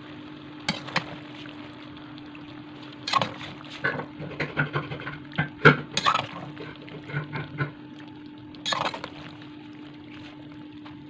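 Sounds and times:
spoon scraping and knocking a pan: 0:08.7 - 0:09.2.

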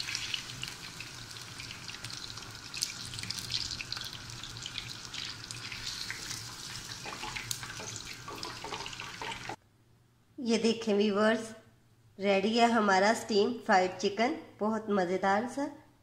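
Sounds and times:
chicken frying in hot oil: 0:00.0 - 0:09.6
oil crackling and popping: 0:00.0 - 0:09.6.

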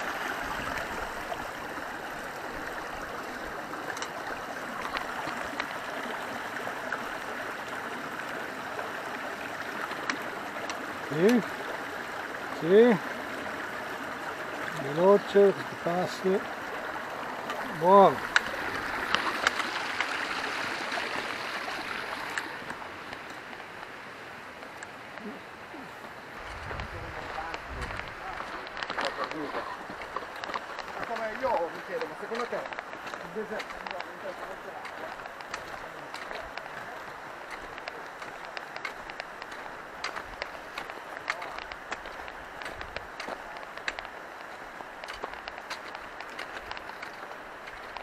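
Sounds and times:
rushing mountain stream: 0:00.0 - 0:48.0
faint clicks: 0:27.5 - 0:48.0.

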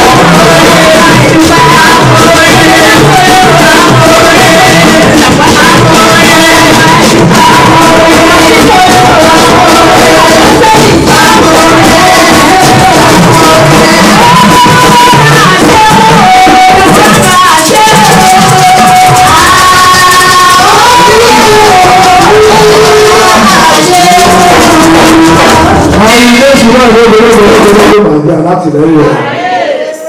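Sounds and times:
shaker percussion: 0:00.0 - 0:27.9
band with drums: 0:00.0 - 0:28.1
person singing into microphone: 0:00.0 - 0:30.0.

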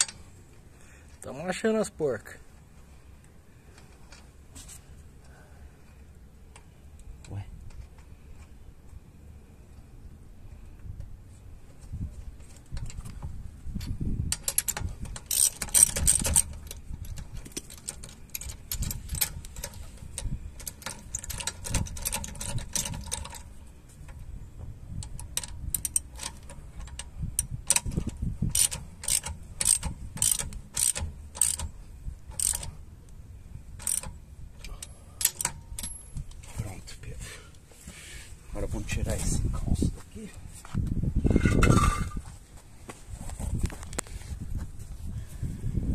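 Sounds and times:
ratchet wrench clicking: 0:13.8 - 0:23.5, 0:25.0 - 0:31.7, 0:32.3 - 0:32.8, 0:33.8 - 0:36.2.

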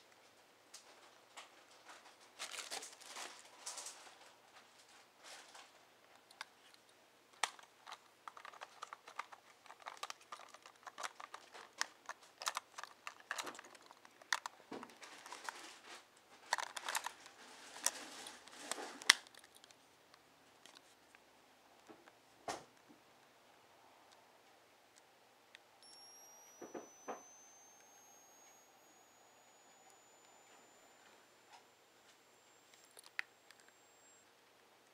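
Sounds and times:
packaging rustling: 0:02.3 - 0:04.0, 0:07.4 - 0:19.8
flash unit clicks and taps: 0:25.8 - 0:33.8.

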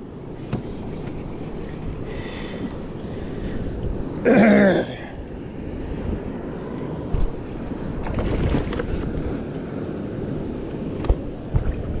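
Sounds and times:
wind noise on microphone: 0:05.5 - 0:09.5, 0:10.3 - 0:12.0.

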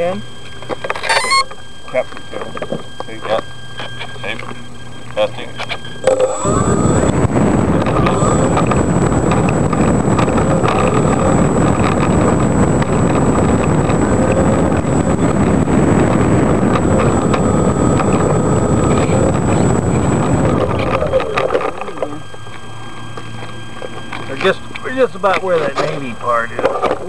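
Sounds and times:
model plane motor whine: 0:00.0 - 0:27.0
wind rush on microphone: 0:06.0 - 0:27.0.

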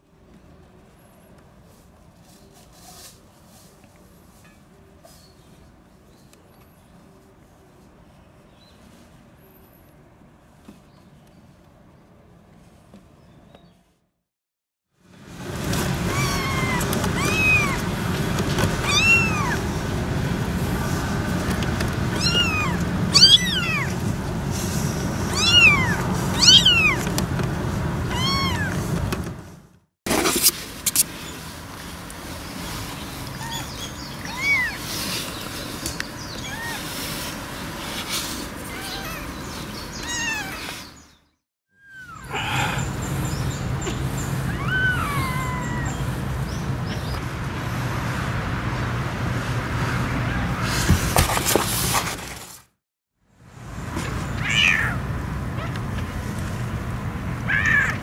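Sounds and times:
kitten mewing: 0:16.1 - 0:17.8, 0:18.8 - 0:19.6, 0:22.1 - 0:23.9, 0:25.3 - 0:27.0, 0:28.1 - 0:28.7, 0:44.5 - 0:46.1.

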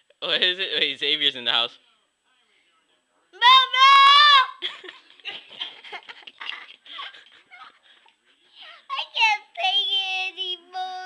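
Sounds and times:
child squealing and singing: 0:03.4 - 0:04.6
child murmuring: 0:08.6 - 0:11.0.

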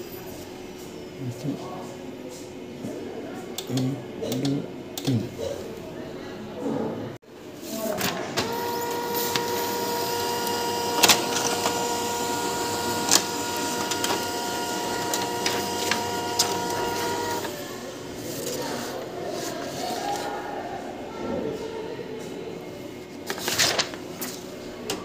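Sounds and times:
paper feed clicks: 0:07.8 - 0:17.7, 0:23.2 - 0:24.4
printer motor whine: 0:08.0 - 0:18.5.

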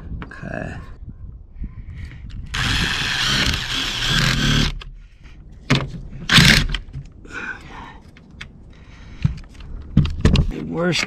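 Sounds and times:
impact driver driving screw: 0:02.5 - 0:04.8, 0:06.3 - 0:06.8.

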